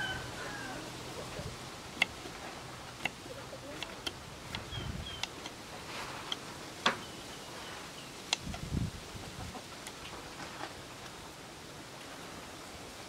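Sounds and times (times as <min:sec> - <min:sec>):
faint birds chirping: 0:00.0 - 0:08.6.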